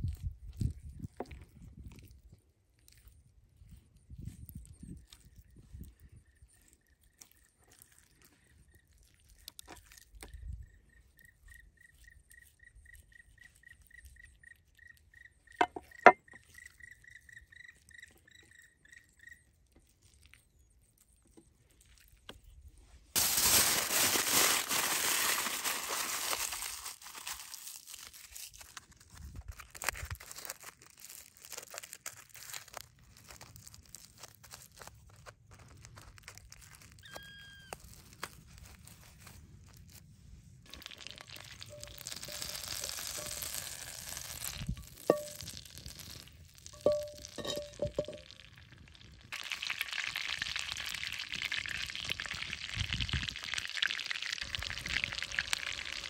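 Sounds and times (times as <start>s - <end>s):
aluminium foil crinkling: 6.7s - 10.3s, 23.2s - 56.0s.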